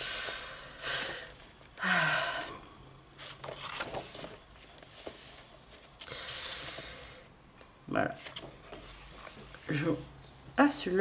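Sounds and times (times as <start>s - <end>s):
paper pages turning: 3.2s - 6.8s.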